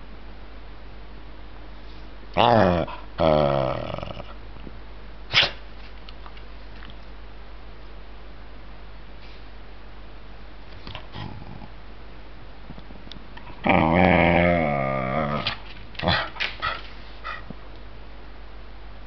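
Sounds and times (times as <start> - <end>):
dog growling: 2.3 - 4.4, 11.0 - 11.8, 13.5 - 17.5.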